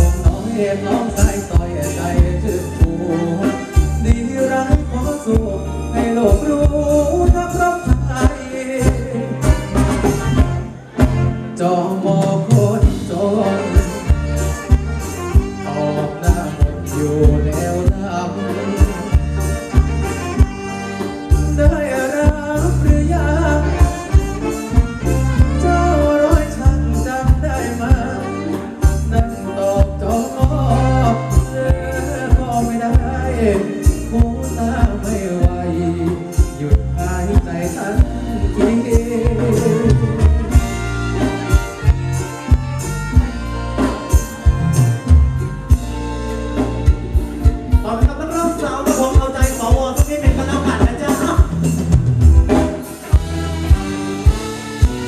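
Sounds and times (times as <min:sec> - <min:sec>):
person singing: 0:00.0 - 0:42.5
live band dance music: 0:00.0 - 0:55.0.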